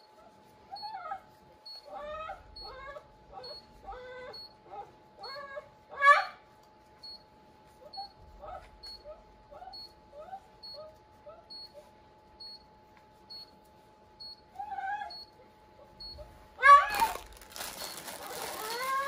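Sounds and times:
dog whimpering: 0.7s - 6.4s, 7.8s - 11.5s, 14.5s - 17.2s, 18.2s - 19.0s.

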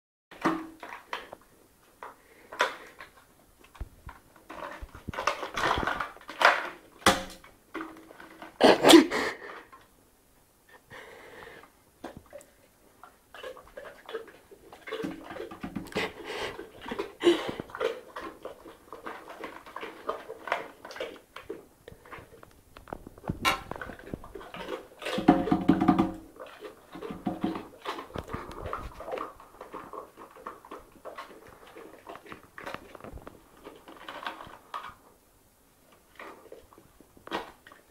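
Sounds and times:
slurping and smacking: 10.8s - 35.0s
person eating noisily: 12.3s - 35.0s.

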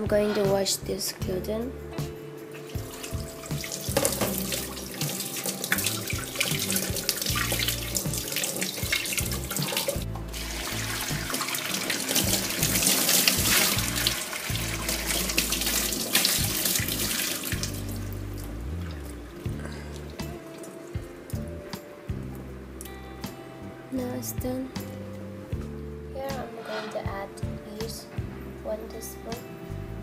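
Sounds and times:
tap water splashing into sink: 2.7s - 19.0s.

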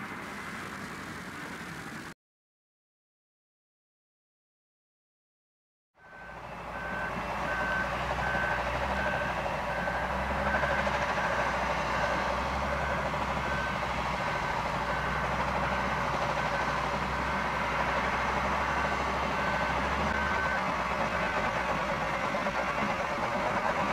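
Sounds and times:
diesel engine rumble: 0.0s - 2.1s, 6.0s - 23.9s
reversing alarm beeping: 6.0s - 23.9s.

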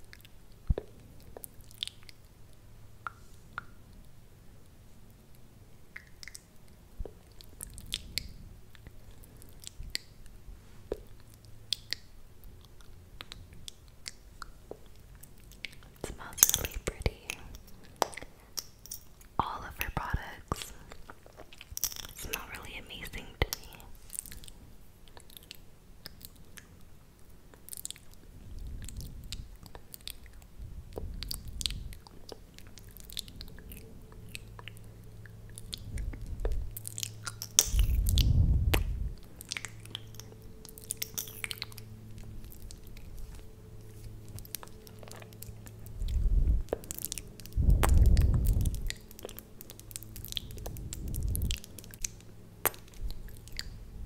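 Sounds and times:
lip smacks and sticky clicks: 5.9s - 10.1s, 10.9s - 26.8s, 27.5s - 28.2s, 28.8s - 53.8s
muffled low rumbles on microphone: 28.2s - 54.0s.

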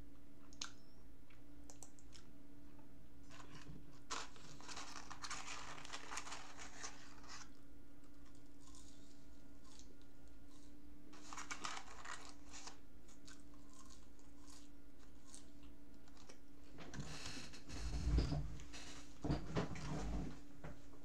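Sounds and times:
paper carton crinkling: 3.3s - 7.6s, 11.2s - 12.8s
person eating fries: 3.3s - 16.4s.

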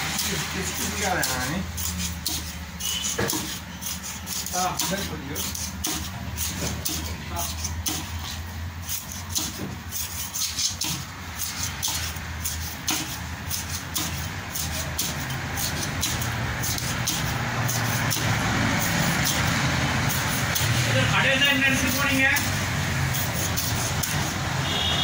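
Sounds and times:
cleaver chopping fish on wood: 1.2s - 20.9s, 21.5s - 24.4s
engine rumble: 10.8s - 25.0s.

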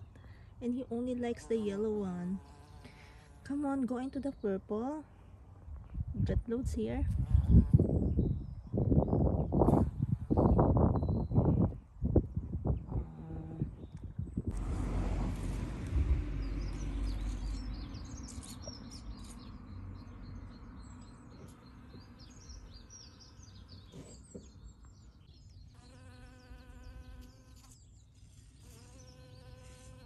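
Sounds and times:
low rumble: 12.6s - 18.2s
small birds chirping: 16.4s - 30.0s.

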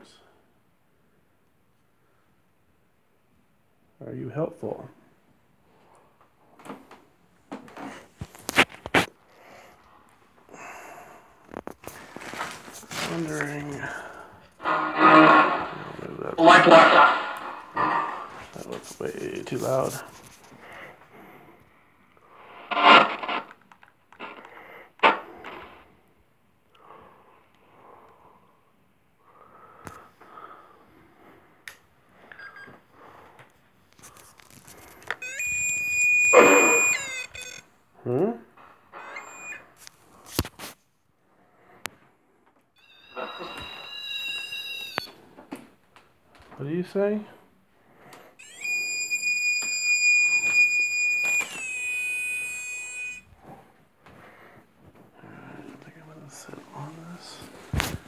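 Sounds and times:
radio static snatches: 11.5s - 20.4s, 22.5s - 23.6s, 36.2s - 37.6s
electronic alarm tone: 35.2s - 37.6s, 39.0s - 39.7s, 42.8s - 45.1s, 48.4s - 53.3s.

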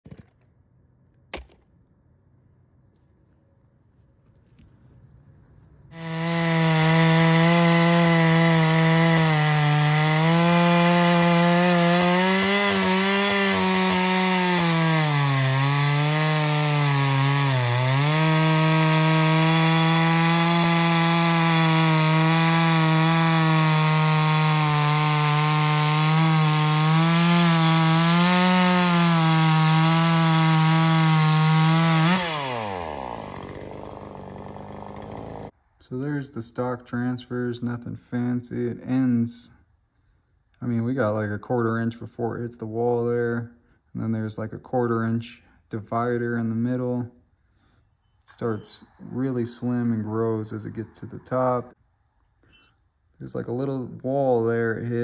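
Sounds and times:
chainsaw cutting log: 1.4s - 1.7s, 5.9s - 35.6s.

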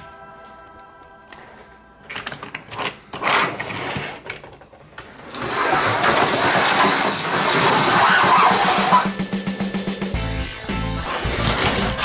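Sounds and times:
plastic toy clicks and scrapes: 5.2s - 9.1s.

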